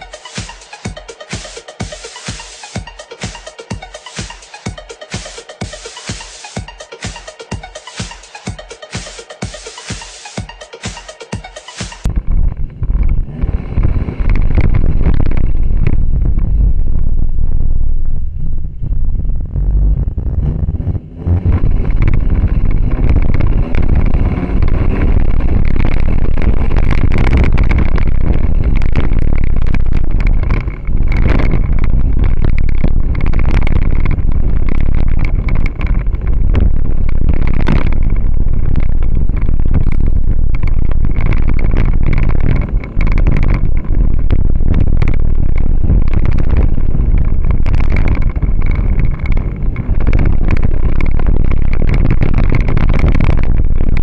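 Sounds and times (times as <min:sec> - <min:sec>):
road rumble: 0:00.0 - 0:54.0
wind buffeting microphone: 0:12.1 - 0:54.0
car engine revving hard: 0:13.2 - 0:14.8, 0:20.3 - 0:29.0.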